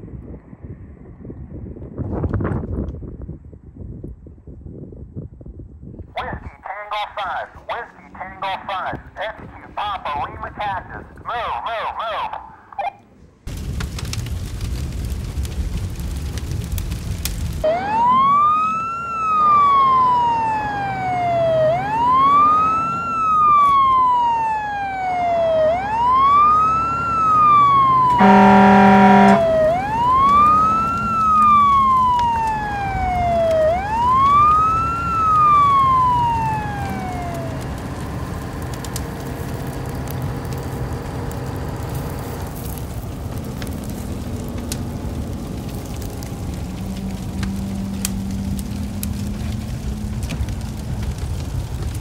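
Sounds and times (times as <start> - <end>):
burning cardboard crackling: 6.1 - 52.0
fire truck siren wailing: 13.8 - 52.0
horn blast: 28.0 - 30.0.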